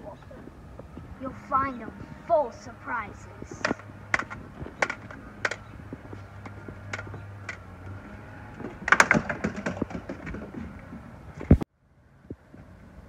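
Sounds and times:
footsteps on wooden deck: 3.3s - 11.6s.

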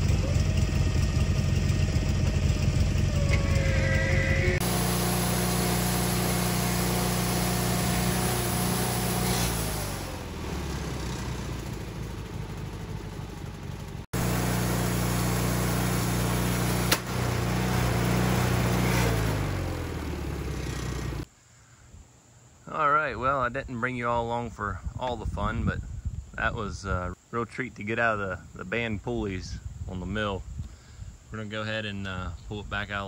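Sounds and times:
band sawmill engine running: 0.0s - 21.3s.

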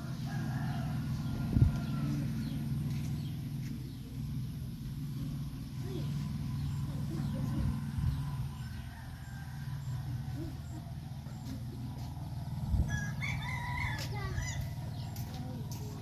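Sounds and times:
rooster crowing: 0.0s - 2.5s, 8.6s - 10.4s, 12.9s - 14.7s
steady low rumble: 0.0s - 16.0s.

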